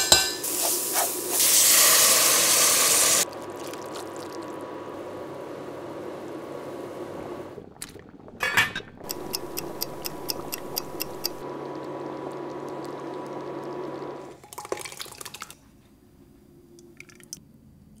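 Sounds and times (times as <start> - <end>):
sauce simmering in a pot: 1.4 - 8.3, 9.0 - 14.4
thick sauce pouring into pot: 3.2 - 4.6
clock-like ticking: 9.0 - 11.4.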